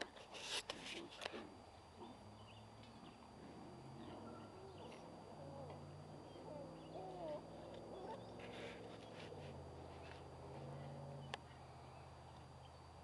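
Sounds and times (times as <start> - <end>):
low steady hum: 0.0 - 13.0
faint animal calls: 1.9 - 12.1.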